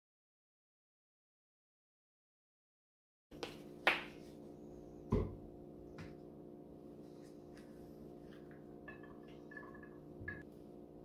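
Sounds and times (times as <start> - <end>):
steady low hum: 3.5 - 11.0.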